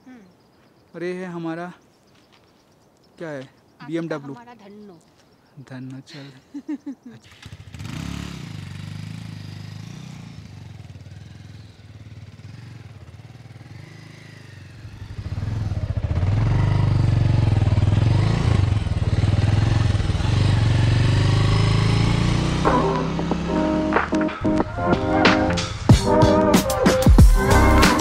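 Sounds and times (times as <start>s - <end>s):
motorcycle engine running: 7.2s - 24.8s.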